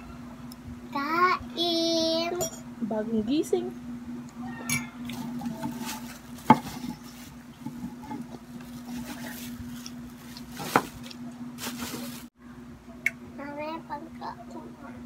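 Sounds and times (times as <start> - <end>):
steady low hum: 0.0 - 15.0
tableware clinking: 2.4 - 2.7, 4.6 - 5.2
plastic bag crinkling: 5.1 - 7.6, 8.5 - 12.3.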